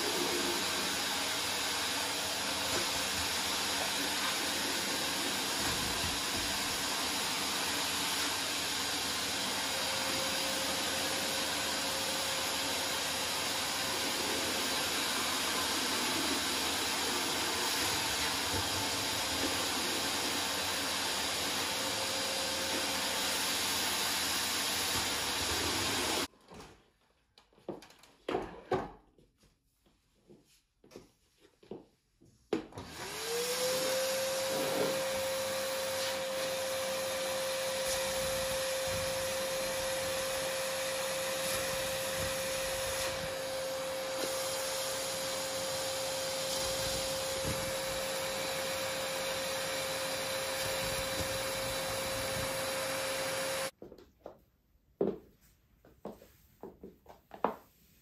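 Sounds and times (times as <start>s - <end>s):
vacuum cleaner running: 0.0s - 26.3s, 32.7s - 53.8s.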